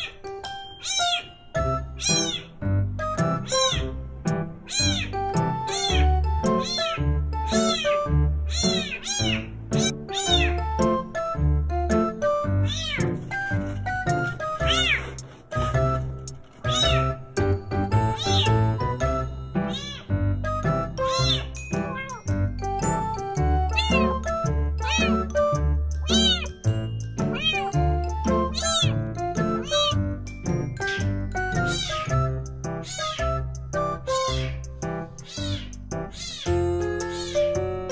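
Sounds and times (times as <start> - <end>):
kitten meowing: 0.0 - 0.2, 0.8 - 2.7, 3.3 - 4.0, 4.6 - 11.1, 12.3 - 15.8, 16.5 - 17.2, 18.0 - 18.8, 19.6 - 20.2, 21.0 - 22.3, 23.7 - 25.4, 26.0 - 26.6, 27.2 - 30.2, 30.8 - 33.4, 34.0 - 37.6
background music: 0.0 - 37.9.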